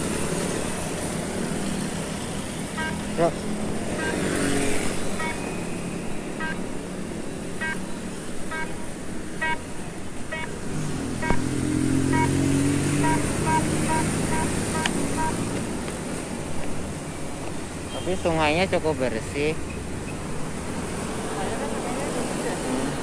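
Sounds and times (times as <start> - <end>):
motor scooter passing: 0.0 - 7.8, 10.8 - 15.7
vehicle engine humming: 0.0 - 23.0
pedestrian crossing beeps: 2.7 - 3.3, 3.9 - 6.8, 7.6 - 10.6, 11.2 - 15.6, 17.9 - 18.3.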